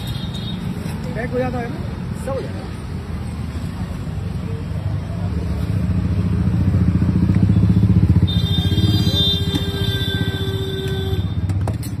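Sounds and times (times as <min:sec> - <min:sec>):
motorcycle engine running: 0:05.9 - 0:11.7.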